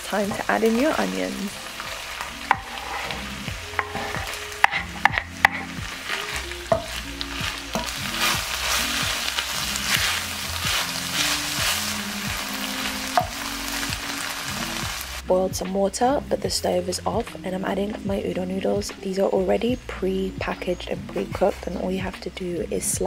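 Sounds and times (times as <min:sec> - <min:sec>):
meat and onions sizzling: 0:00.0 - 0:15.2
utensil scraping pan: 0:02.1 - 0:13.3.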